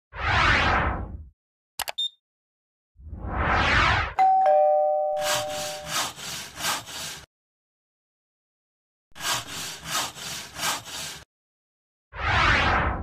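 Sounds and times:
brief click: 1.8 - 2.2
whoosh: 3.0 - 4.2, 12.2 - 13.0
scratchy rubbing noise: 5.2 - 7.2, 9.2 - 11.2.

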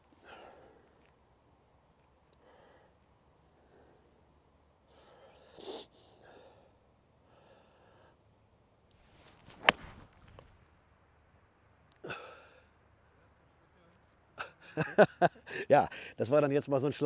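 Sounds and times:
golf driver striking ball: 9.4 - 10.5.

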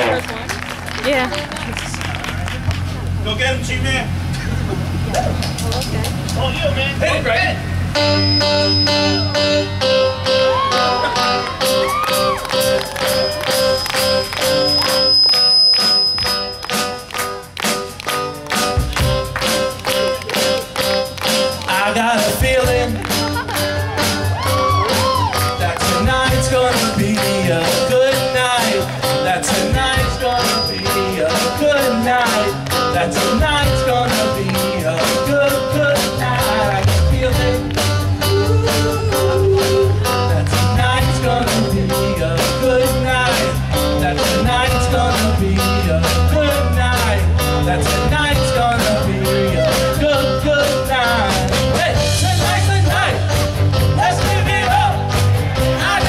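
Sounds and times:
live rock band playing: 0.0 - 3.2, 7.0 - 56.0.

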